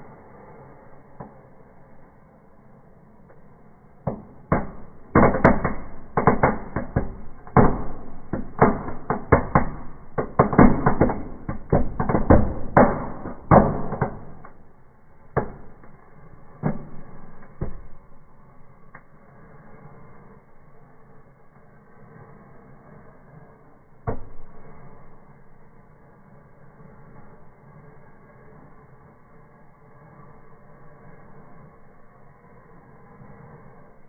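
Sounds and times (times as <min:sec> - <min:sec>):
fireworks banging and crackling: 0:04.0 - 0:20.4.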